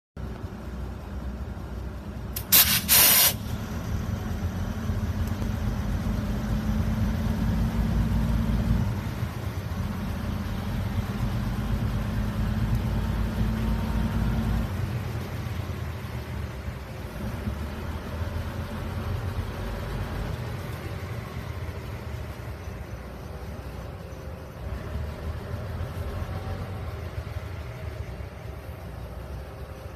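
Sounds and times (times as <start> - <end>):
locomotive engine running: 0.2 - 29.9
air hiss burst: 2.4 - 3.6.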